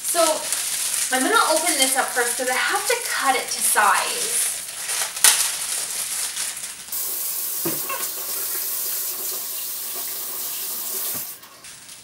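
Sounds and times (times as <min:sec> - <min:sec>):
faucet turned on: 0:07.0 - 0:11.4
water running into steel sink: 0:07.0 - 0:11.5.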